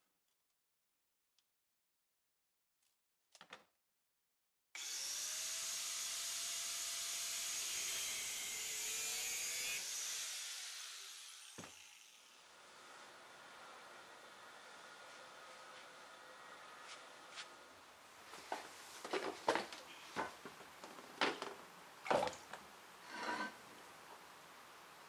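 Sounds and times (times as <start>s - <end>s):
angle grinder cutting steel rod: 4.8s - 16.7s
faint steady noise: 12.1s - 25.0s.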